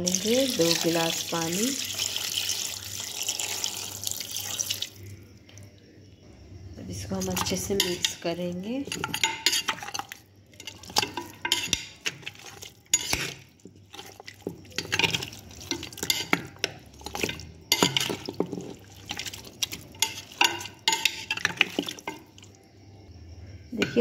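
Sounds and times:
metal spoon scraping a steel pot: 0:07.2 - 0:22.3.

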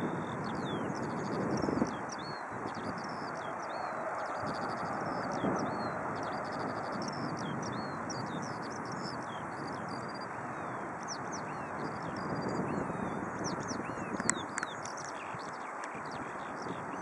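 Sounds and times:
bird chirping and trilling: 0:00.0 - 0:17.0
jet engines rumbling: 0:01.8 - 0:12.0.

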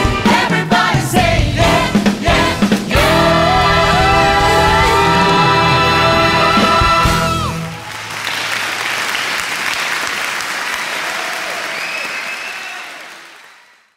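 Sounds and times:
band and cast singing held note: 0:00.0 - 0:07.8
audience applauding: 0:07.0 - 0:13.9.

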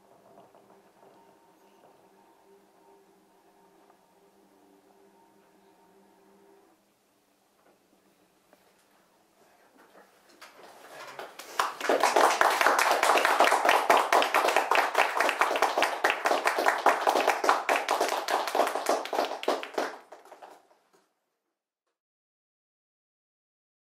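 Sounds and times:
audience applause: 0:11.2 - 0:20.8.

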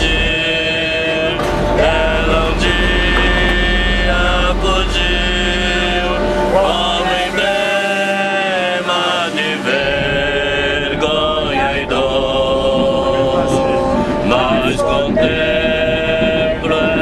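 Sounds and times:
voices singing a hymn: 0:00.0 - 0:17.0
low rumble: 0:01.4 - 0:07.7.

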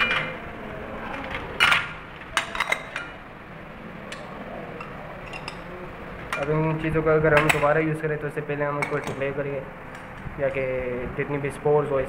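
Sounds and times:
glassware clinking on metal tray: 0:00.0 - 0:00.4, 0:01.6 - 0:03.2, 0:04.8 - 0:05.7, 0:08.8 - 0:09.2.

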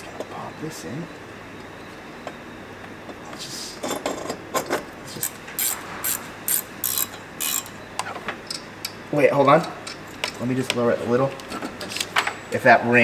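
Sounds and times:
ratchet wrench clicking: 0:05.2 - 0:07.7.

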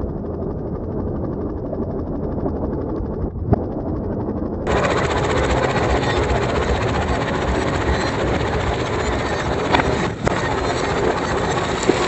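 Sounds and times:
tractor engine rumbling: 0:04.7 - 0:12.0.

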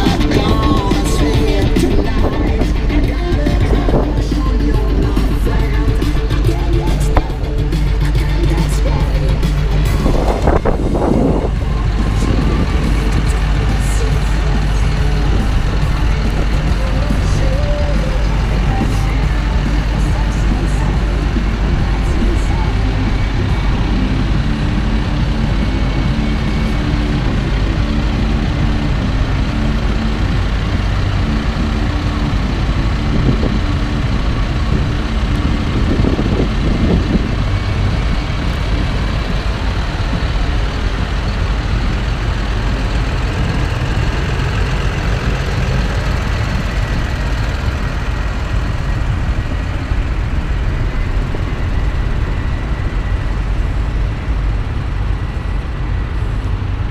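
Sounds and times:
tractor diesel engines droning: 0:00.0 - 0:56.9.

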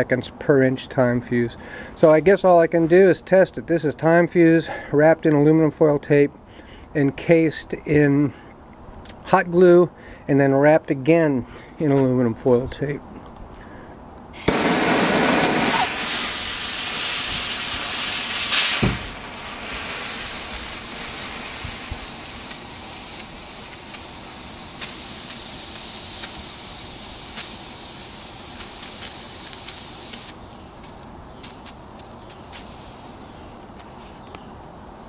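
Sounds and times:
fuse hissing: 0:14.4 - 0:34.3
small crackles: 0:17.0 - 0:26.6, 0:27.3 - 0:34.7.

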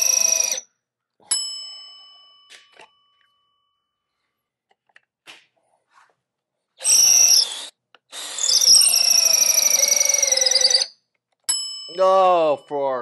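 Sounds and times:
cordless drill whining: 0:00.0 - 0:00.6, 0:06.8 - 0:10.9.

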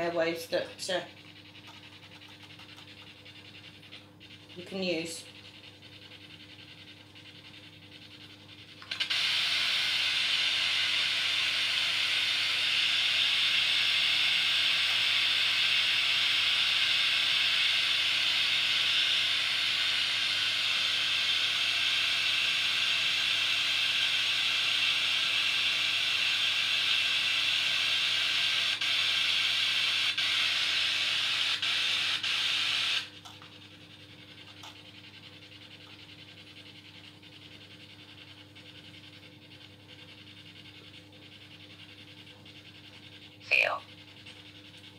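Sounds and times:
radio static hiss: 0:26.4 - 0:33.1, 0:43.4 - 0:43.9
low steady hum: 0:33.1 - 0:44.9.

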